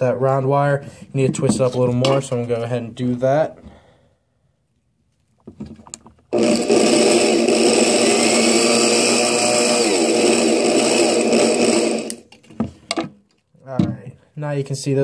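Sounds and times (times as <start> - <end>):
power drill motor running: 6.3 - 12.3.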